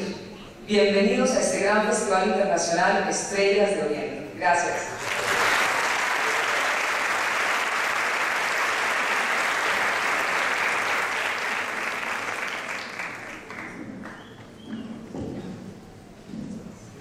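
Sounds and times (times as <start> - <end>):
audience applauding: 5.0 - 14.6.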